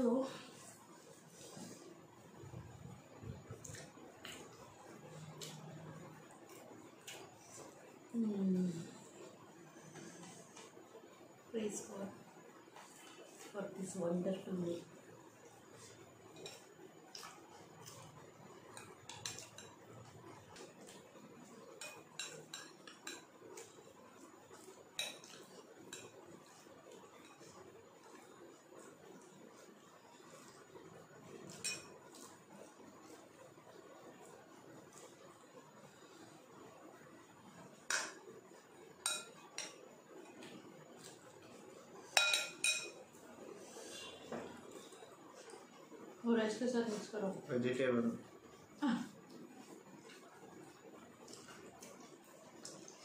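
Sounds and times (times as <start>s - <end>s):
spoon clinking on dishes: 25.0s - 26.2s, 31.5s - 32.2s, 39.0s - 39.8s, 42.1s - 43.0s.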